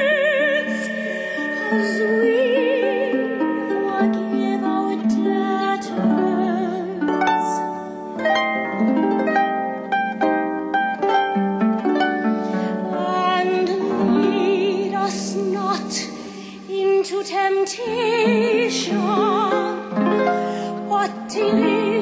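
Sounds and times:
soprano singing with vibrato: 0.0 - 8.0, 12.4 - 22.0
harp arpeggiated chords: 0.7 - 15.0.

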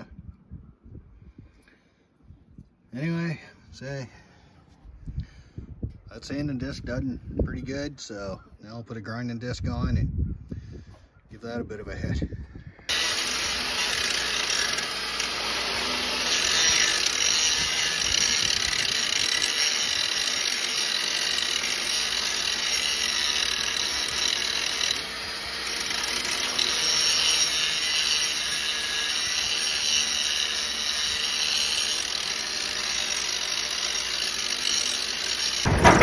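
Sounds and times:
angle grinder grinding steel: 12.9 - 36.0.

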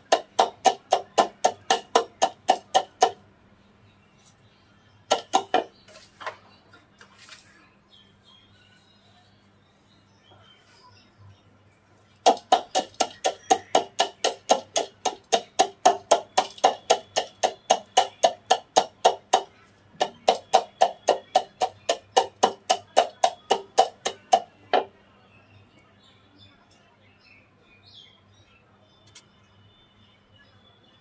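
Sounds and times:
wooden pestle pounding in mortar: 0.0 - 3.2, 5.1 - 5.7, 12.2 - 24.9.

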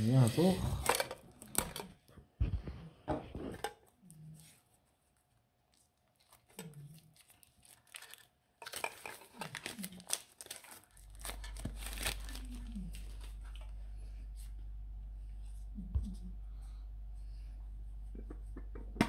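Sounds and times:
plastic wrap crinkling and tearing: 0.0 - 2.0, 5.7 - 13.7.

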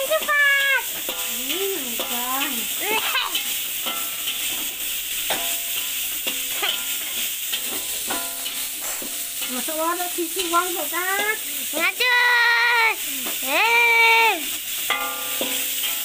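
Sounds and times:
spatula striking wok with ring: 0.0 - 11.4, 14.6 - 16.0
meat sizzling in a wok: 0.0 - 16.0
metal spatula scraping: 0.9 - 11.5, 14.7 - 16.0.

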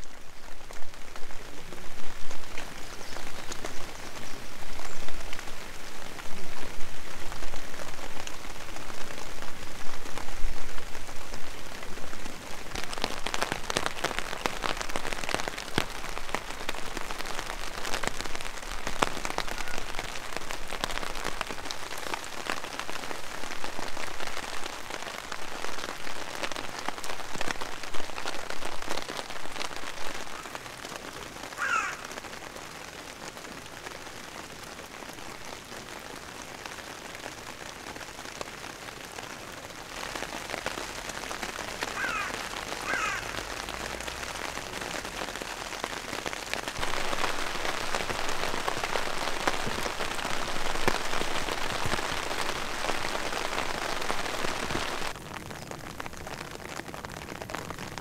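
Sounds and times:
rain pattering on a tarp: 0.0 - 58.0
bird calling: 31.6 - 32.1, 41.9 - 43.4.

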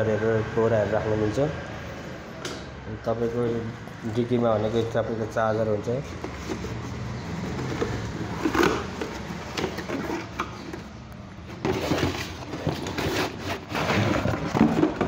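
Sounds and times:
cardboard box scraping plastic: 6.2 - 15.0.

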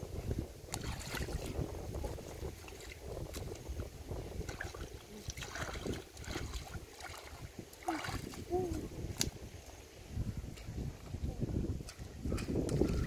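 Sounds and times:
hands splashing in water: 4.4 - 9.4.

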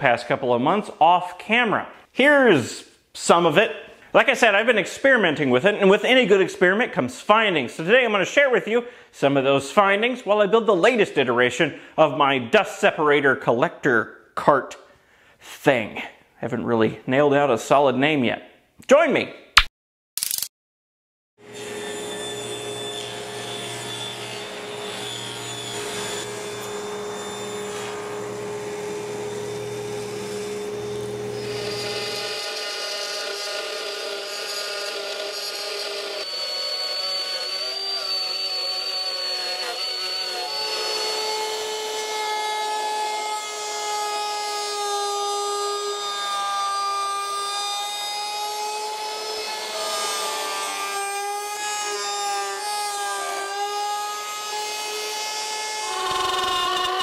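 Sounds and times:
router cutting wood: 21.4 - 57.0.

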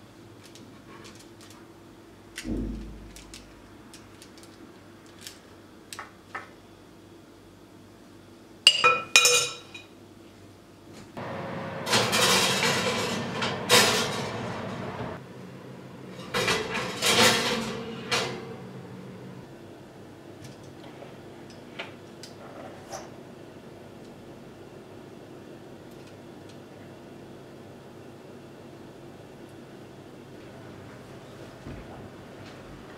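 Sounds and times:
glass clinking on metal: 8.7 - 9.9
glass dish scraping on oven rack: 11.8 - 15.2, 16.2 - 18.6.

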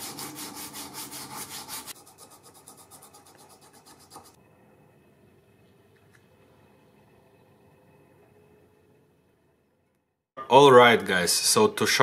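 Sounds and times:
sandpaper rubbing on brass: 0.0 - 4.4.

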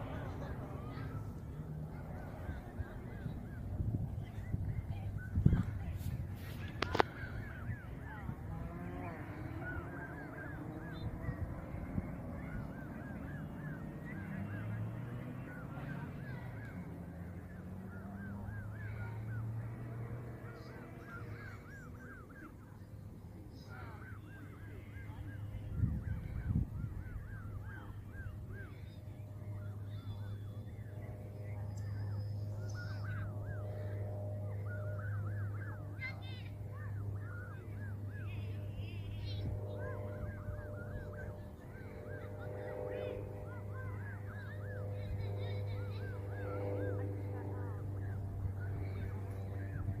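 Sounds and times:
steady low rumble: 0.0 - 15.8
steady low hum: 0.0 - 50.0
geese honking: 5.3 - 31.4, 32.6 - 50.0.

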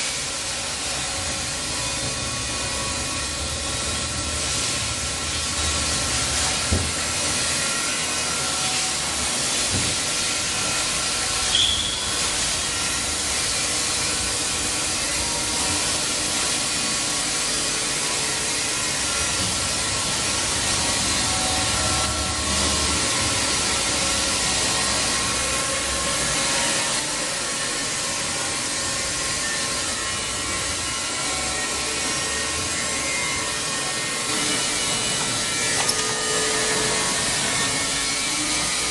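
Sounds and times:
short high chirp: 11.5 - 12.1.

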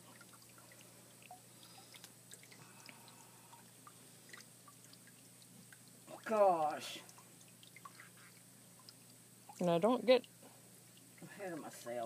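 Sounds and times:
wet clicks and squishes: 0.2 - 3.0.

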